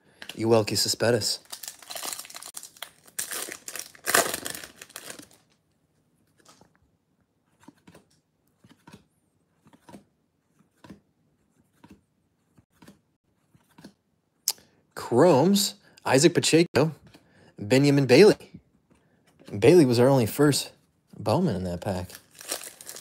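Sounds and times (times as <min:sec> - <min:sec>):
card pack wrapper tearing and crinkling: 0:01.1 - 0:05.6, 0:21.9 - 0:23.0
cards sliding with soft flicks: 0:07.5 - 0:14.0.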